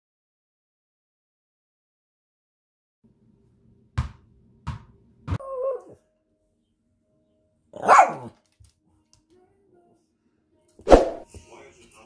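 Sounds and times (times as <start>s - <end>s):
dog whining: 5.4s - 6.0s
small dog barking: 7.8s - 8.4s.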